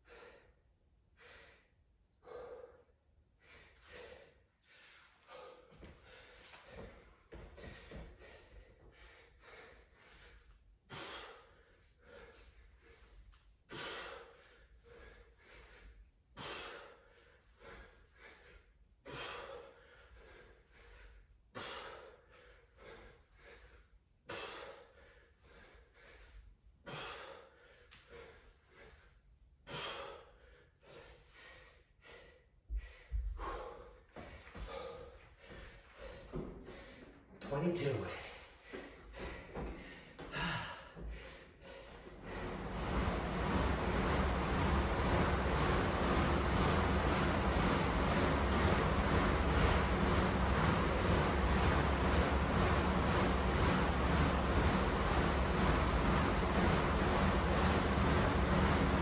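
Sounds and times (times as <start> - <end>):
man breathing hard: 0.0 - 37.4, 38.1 - 43.4
forceful exhales: 34.6 - 37.0.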